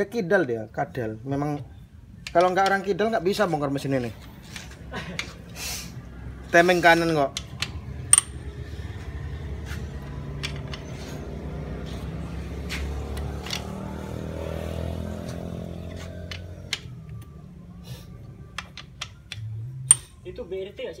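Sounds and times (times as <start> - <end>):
hand tool clicking on metal: 2.2 - 2.9.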